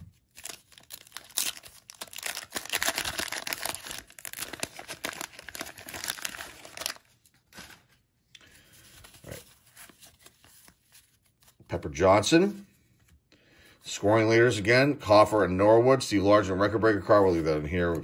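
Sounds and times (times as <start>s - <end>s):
wax paper tearing and crinkling: 0.0s - 7.9s.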